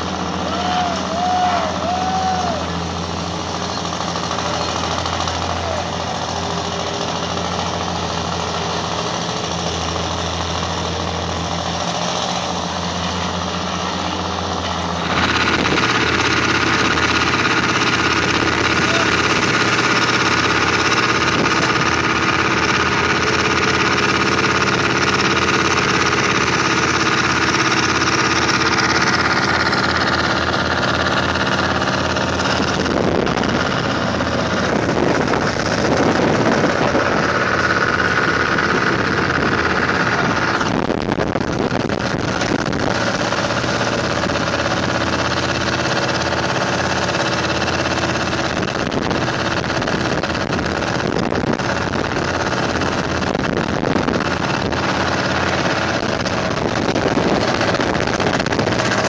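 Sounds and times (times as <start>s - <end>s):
construction machinery engine running: 0.0s - 59.0s.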